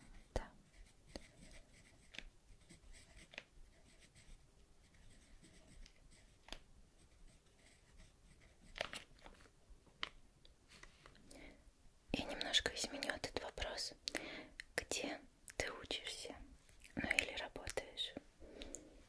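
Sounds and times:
pen scratching on paper: 0.1s - 8.8s.

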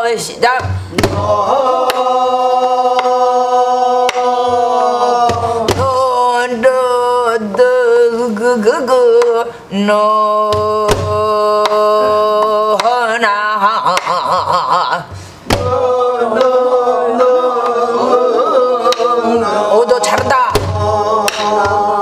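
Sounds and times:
barrel drum strokes: 0.6s - 1.3s.

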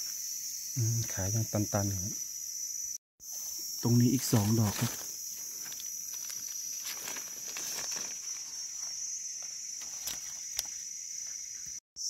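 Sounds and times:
high-pitched insect drone: 0.0s - 12.0s
rustling in dry leaves: 3.4s - 11.5s.

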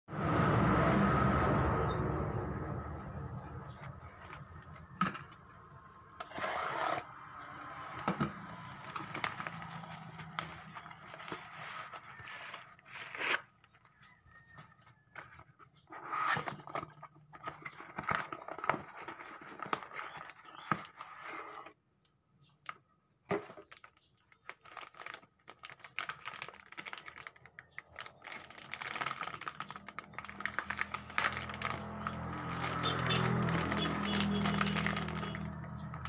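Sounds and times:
plastic bag crinkling: 7.7s - 12.3s, 23.5s - 36.0s.

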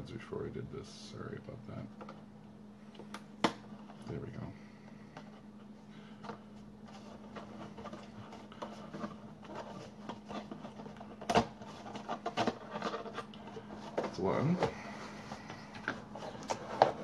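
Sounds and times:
faint steady hum: 0.0s - 17.0s
paper rustling and scraping: 6.1s - 17.0s.

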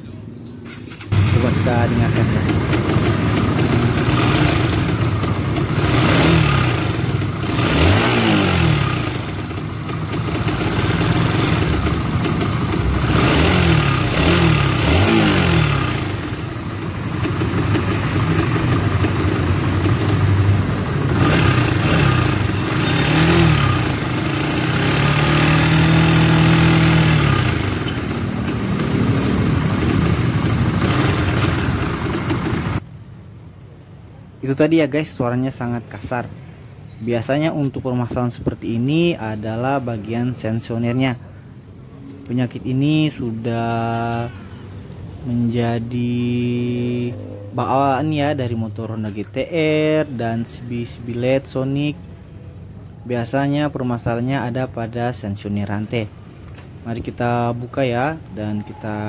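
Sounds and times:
rough motorcycle engine revving: 0.8s - 32.8s, 45.4s - 48.4s.

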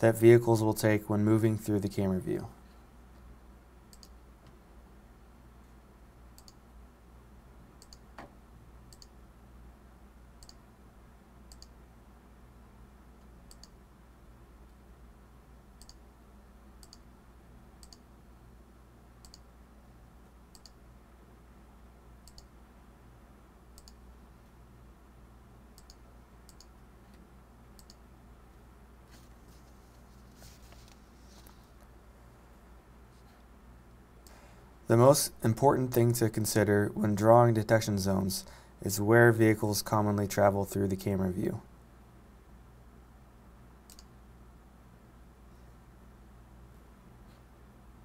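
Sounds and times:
faint low hum: 0.0s - 48.0s
computer mouse clicking: 3.9s - 4.6s, 6.4s - 6.6s, 7.8s - 8.3s, 8.9s - 9.2s, 10.4s - 10.6s, 11.5s - 11.8s, 13.2s - 13.8s, 15.8s - 16.0s, 16.8s - 17.1s, 17.8s - 18.1s, 19.2s - 19.5s, 20.5s - 20.8s, 22.2s - 22.5s, 23.8s - 24.0s, 25.8s - 27.2s, 27.8s - 28.0s, 43.9s - 44.1s.

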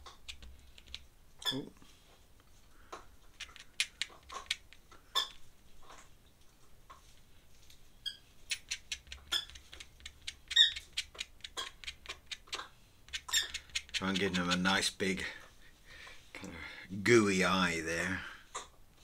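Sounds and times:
pen scratching on paper: 8.5s - 14.8s.

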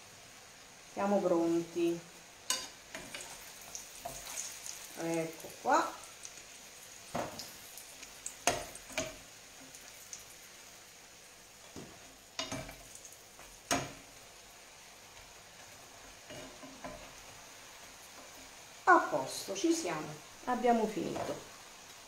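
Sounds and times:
dough sizzling in hot oil: 0.0s - 22.0s
metal utensils clicking on pan: 2.5s - 3.4s, 8.4s - 9.2s, 12.4s - 14.0s, 16.3s - 17.1s.

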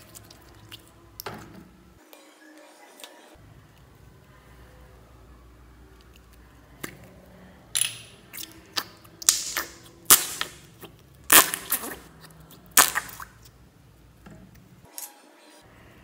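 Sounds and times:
slime popping and crackling: 8.3s - 12.1s, 12.7s - 13.4s.

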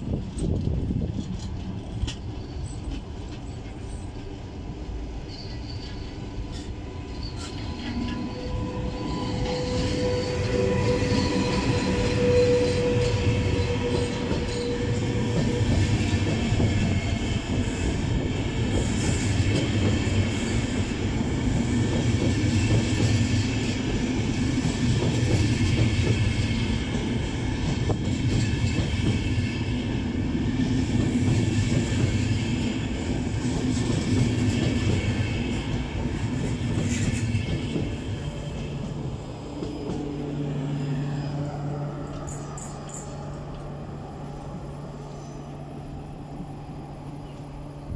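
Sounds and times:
train wheels rumbling on rails: 0.0s - 47.9s
high-pitched wheel squeal: 5.3s - 15.6s.

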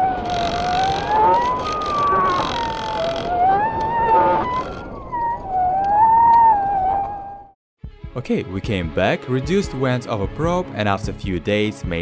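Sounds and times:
wind noise: 0.0s - 7.5s
wavering whistle of rushing air: 0.0s - 7.6s.

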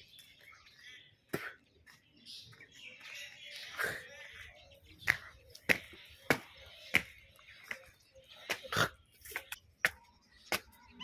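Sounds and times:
faint birdsong: 0.0s - 11.0s.

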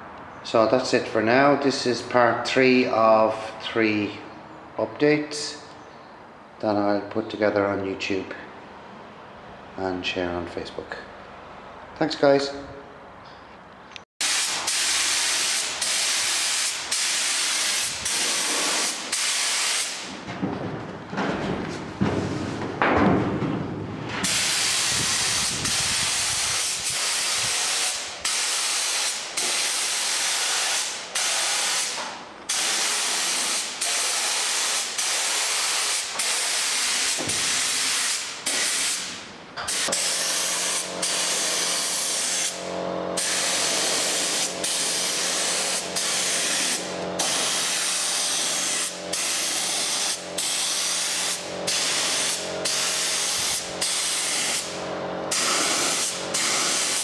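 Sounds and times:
spray gun hissing: 14.2s - 20.1s, 24.2s - 57.0s
steady low hum: 40.5s - 56.4s.

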